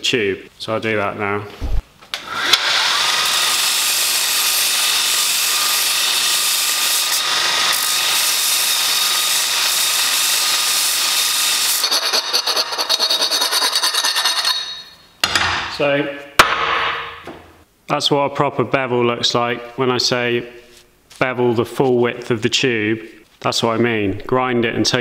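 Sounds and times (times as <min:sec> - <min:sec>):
belt grinder grinding steel: 0:02.2 - 0:14.9
scraping strokes on metal tube: 0:07.8 - 0:15.0.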